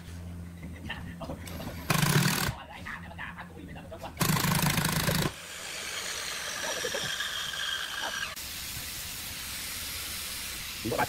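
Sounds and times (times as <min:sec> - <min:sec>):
cordless drill driving screw: 0:04.2 - 0:08.4
steady hiss: 0:07.8 - 0:11.0.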